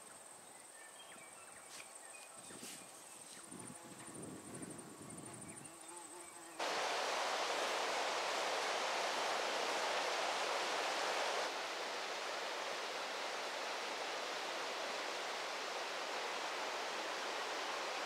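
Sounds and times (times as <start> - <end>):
river rushing: 6.6 - 18.0.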